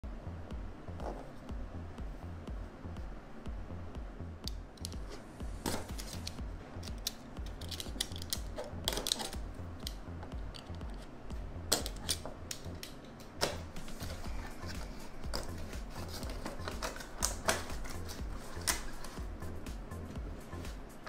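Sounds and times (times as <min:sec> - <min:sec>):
music with pulsing bass beat: 0:00.0 - 0:21.0
packaging being cut and handled: 0:13.4 - 0:19.2.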